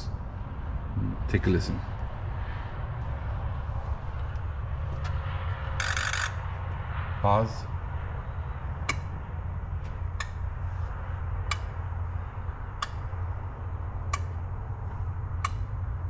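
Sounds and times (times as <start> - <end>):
steady low hum: 0.0 - 16.0
fuel injectors clicking: 5.8 - 6.4.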